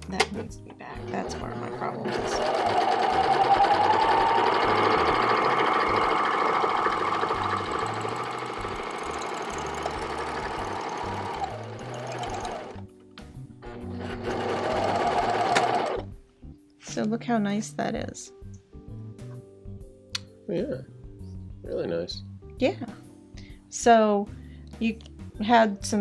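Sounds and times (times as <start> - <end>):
serger sewing machine running: 1.2 - 12.8, 13.6 - 16.0.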